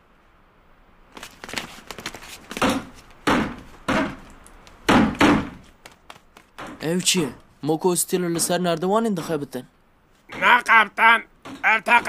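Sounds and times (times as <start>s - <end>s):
wooden door being battered: 2.5s - 5.7s.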